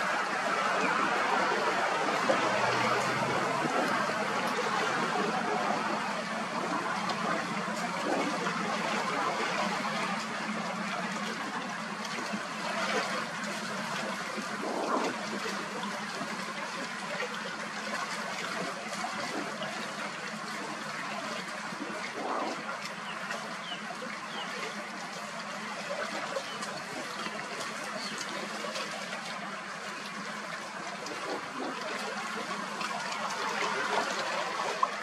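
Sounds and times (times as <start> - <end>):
rushing outdoor noise: 0.0 - 35.0.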